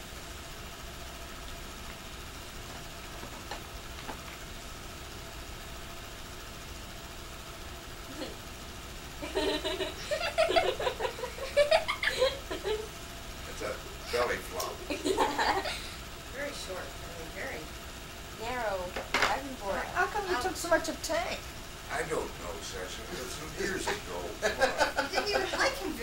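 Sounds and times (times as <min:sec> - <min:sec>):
film projector whirring: 0:00.0 - 0:26.0
people laughing: 0:09.2 - 0:12.9, 0:14.1 - 0:16.0, 0:23.1 - 0:26.0.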